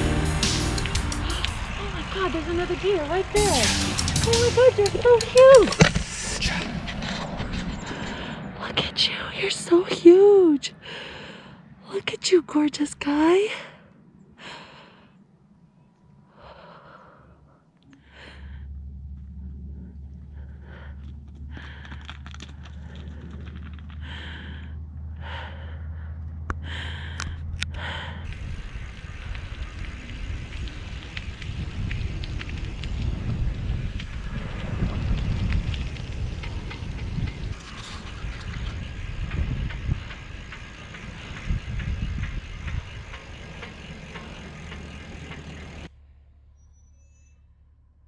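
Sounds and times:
low rumble from moving bike: 0.0 - 48.0
cyclist breathing hard: 0.4 - 1.8, 5.9 - 8.6, 10.7 - 11.8, 13.5 - 15.4, 16.2 - 32.1
wind rushing over microphone: 28.2 - 43.8.

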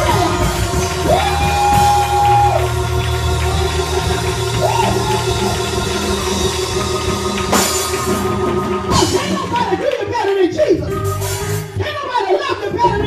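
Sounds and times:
cymbal crashes: 0.0 - 9.8
sustained keyboard chords: 0.0 - 11.9
drum kit: 0.0 - 12.0
gospel band music: 0.0 - 13.0.

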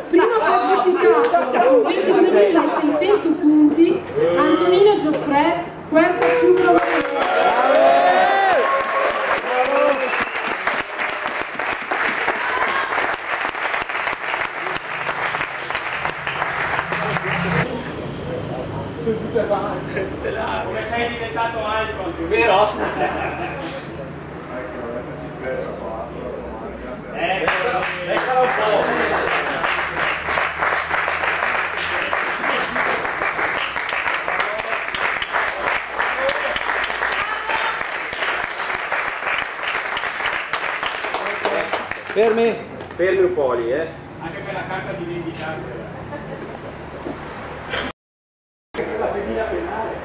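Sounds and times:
audience applauding: 6.2 - 17.7, 27.4 - 42.5.

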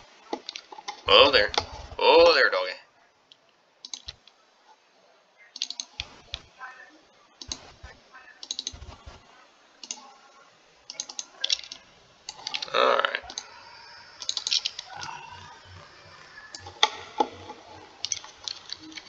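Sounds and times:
computer mouse clicks: 3.3 - 4.4, 5.6 - 6.4, 7.4 - 7.7, 8.4 - 9.0, 9.8 - 10.1, 10.9 - 19.0
keyboard key presses: 5.6 - 6.4, 8.4 - 8.9, 14.2 - 15.0, 16.5 - 19.0.

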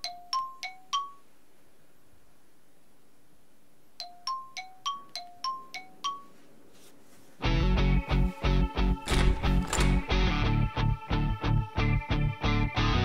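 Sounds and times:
phone ringtone chiming: 0.0 - 1.3, 4.0 - 6.4.

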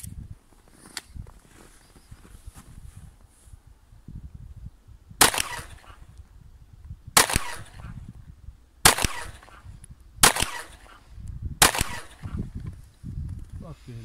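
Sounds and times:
pistol shots: 5.2 - 6.0, 7.2 - 8.0, 8.8 - 11.0, 11.6 - 12.4.

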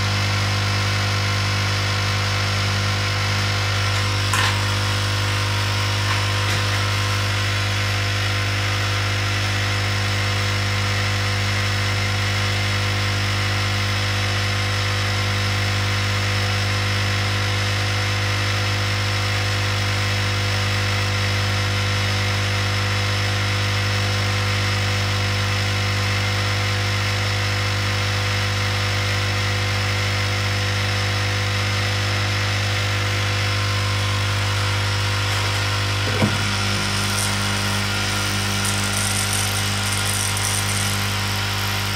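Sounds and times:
hot air station humming: 3.6 - 7.8, 34.4 - 41.9.

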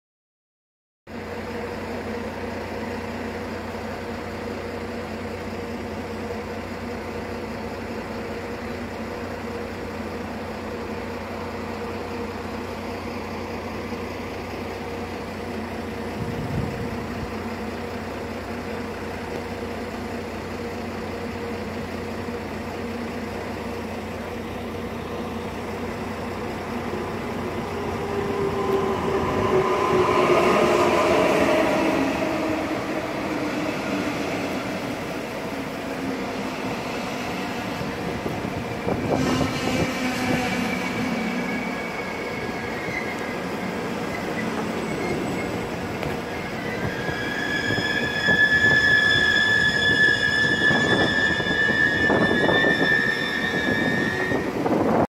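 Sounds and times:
electric train hum: 1.1 - 55.0.

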